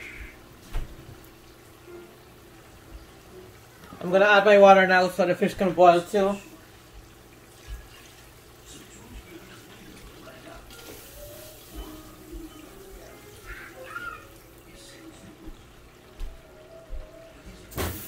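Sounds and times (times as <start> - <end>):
water pouring and splashing: 5.4 - 16.3.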